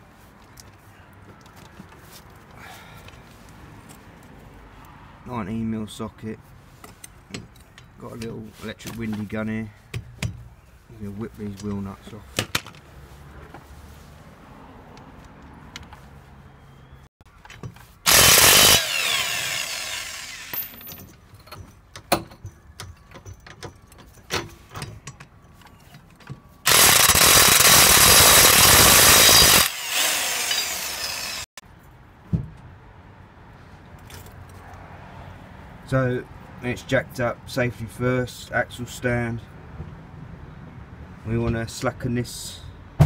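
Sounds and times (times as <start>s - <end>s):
electric impact wrench: 18.1s - 20.7s, 26.7s - 31.5s.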